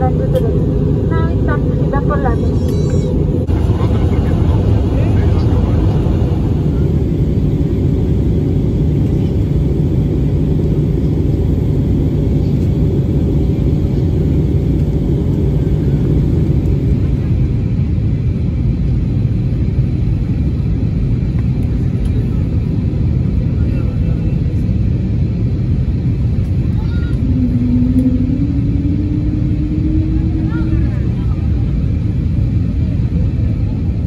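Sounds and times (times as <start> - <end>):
airplane cabin rumble: 0.0 - 34.0.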